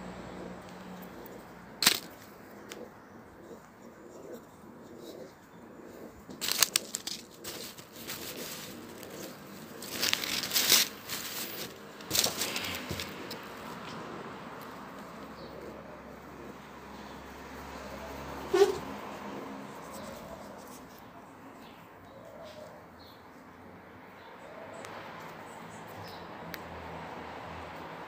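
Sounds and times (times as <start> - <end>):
plastic packaging crinkling and tearing: 6.4 - 13.2.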